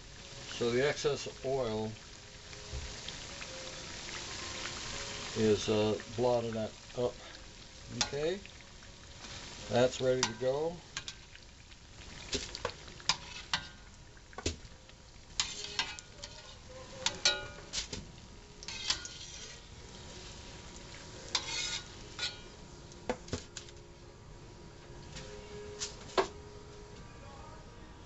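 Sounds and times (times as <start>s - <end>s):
pastries sizzling in hot oil: 0.0s - 23.8s
mesh skimmer clinking on pan: 10.2s - 11.2s, 17.0s - 17.8s.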